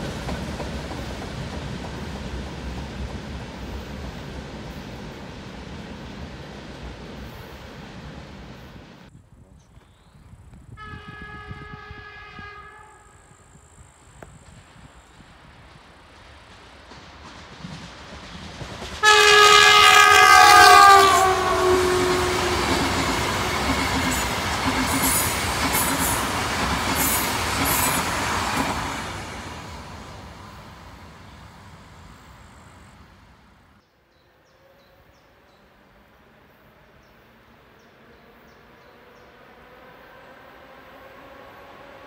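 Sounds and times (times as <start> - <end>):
train wheels clattering on rails: 0.0 - 7.4, 14.3 - 20.0, 20.8 - 29.9
distant train: 0.0 - 42.0
train horn blast: 10.7 - 13.5, 19.0 - 24.5.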